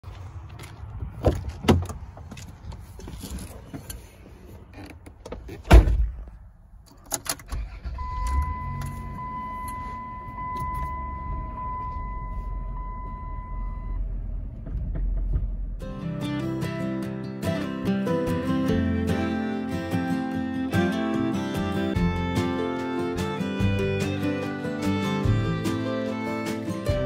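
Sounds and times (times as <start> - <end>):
car engine starting and idling: 0.1 - 27.0
car door shutting: 4.8 - 6.3
dashboard warning tone: 7.7 - 14.0.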